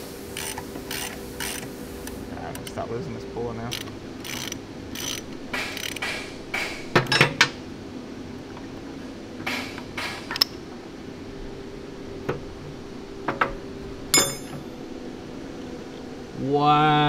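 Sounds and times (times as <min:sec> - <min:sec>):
steel tools clanking on metal: 0:07.0 - 0:07.5, 0:14.1 - 0:14.7.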